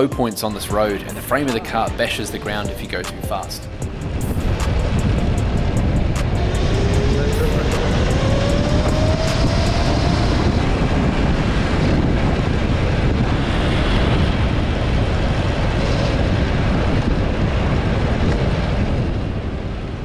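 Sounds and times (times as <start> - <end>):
wind rushing over microphone: 0.0 - 20.0
electric motor whine: 3.9 - 12.2.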